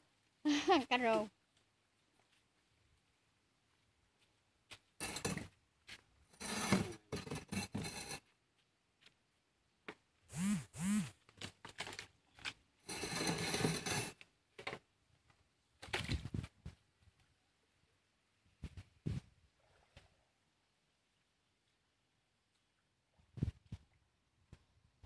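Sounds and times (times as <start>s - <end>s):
wheelbarrow scraping over concrete: 6.4s - 8.2s, 12.9s - 14.2s.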